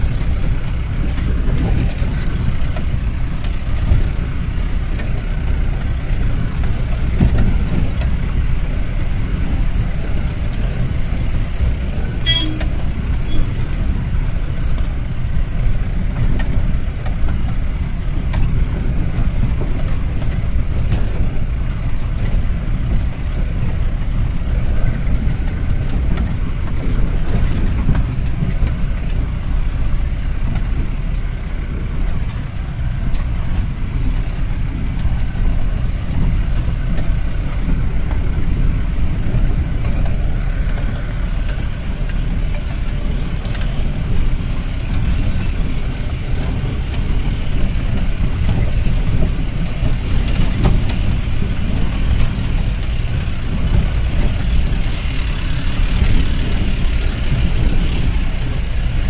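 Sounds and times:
body knocks and rattles: 0.0 - 59.0
jeep engine and road rumble: 0.0 - 59.0.

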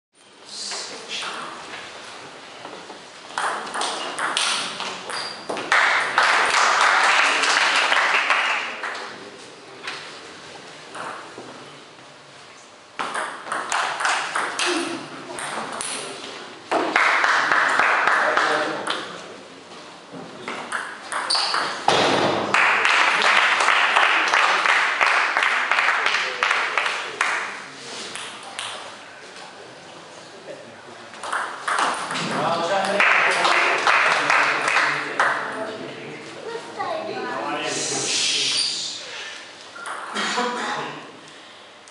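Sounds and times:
table tennis ball hits: 3.3 - 6.2, 13.0 - 16.0, 20.6 - 22.6, 31.2 - 33.0
spectators clapping and cheering: 5.6 - 9.2, 16.7 - 18.8, 22.4 - 27.6, 32.8 - 35.4.

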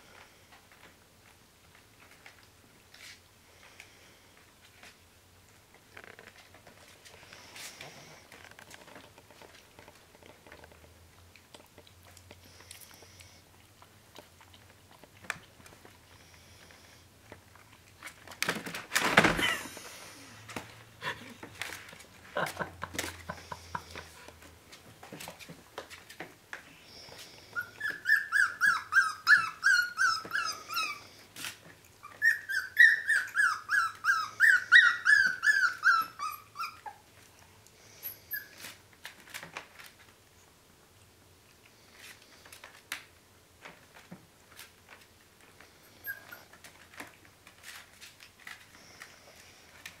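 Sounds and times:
faint clicks of puppies feeding: 0.1 - 18.8, 35.2 - 50.0
puppies yipping: 27.5 - 31.2, 32.0 - 37.1.

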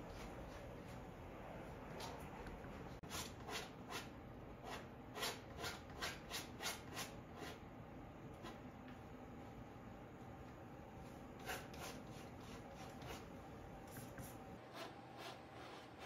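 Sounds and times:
palette knife scraping canvas: 3.1 - 7.6, 11.4 - 13.3, 14.6 - 16.0.

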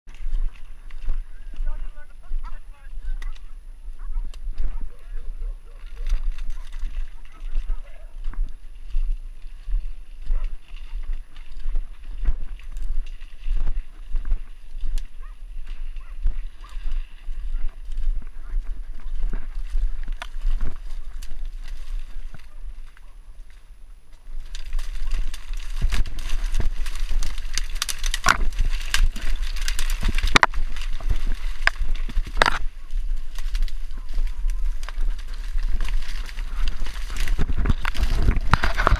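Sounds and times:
footsteps through wet grass: 0.1 - 38.9
stalks snapping and swishing: 24.4 - 38.9.

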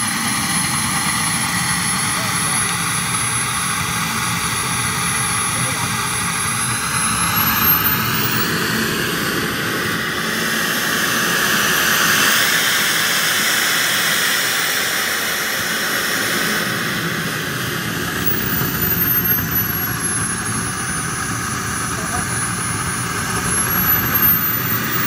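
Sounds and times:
jet turbine whining: 0.0 - 25.0.

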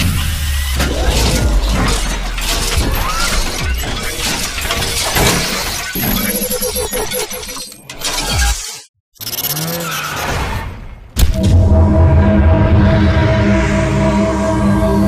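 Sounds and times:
music: 0.0 - 5.7, 11.2 - 15.0.

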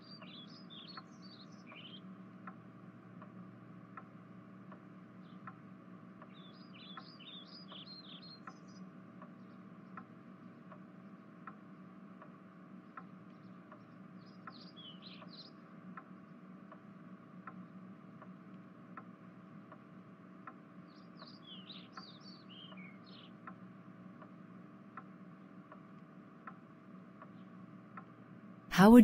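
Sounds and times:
small birds chirping: 0.0 - 2.1, 6.2 - 8.8, 14.2 - 15.6, 20.9 - 23.4
soft repeating tick: 3.2 - 5.6, 9.2 - 10.1, 11.4 - 11.6, 15.9 - 16.1, 18.2 - 19.1, 24.2 - 25.1.

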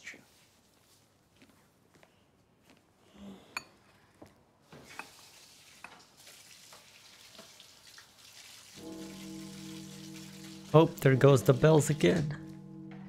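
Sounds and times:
kitchen tap running: 4.7 - 12.6
dishes clinking: 4.8 - 5.2.

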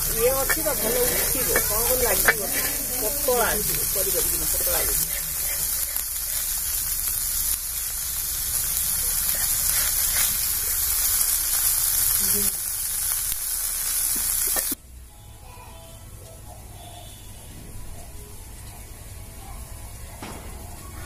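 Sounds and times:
metal spatula stirring in pan: 0.0 - 8.0, 8.6 - 11.4
fish sizzling in oil: 0.0 - 14.8.

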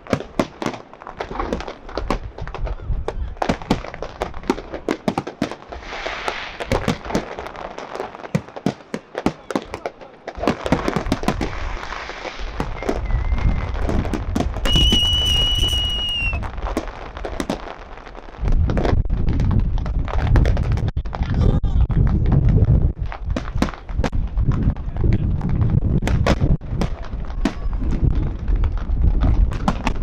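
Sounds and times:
firework bursts and bangs: 0.0 - 30.0
deep booms and crackle: 1.2 - 5.0, 10.3 - 30.0
high whistle: 12.7 - 13.6, 14.6 - 16.4.

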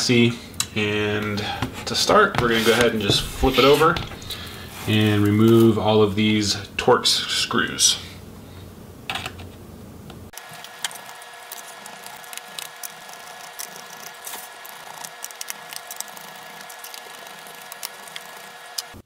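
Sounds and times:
steady hum: 0.3 - 5.2.

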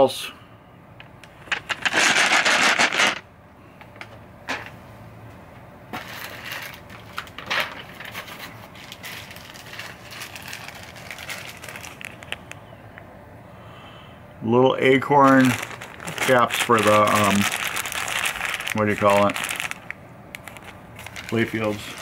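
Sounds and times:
plastic bags crinkling: 1.4 - 3.2, 6.0 - 12.6, 14.9 - 22.0.

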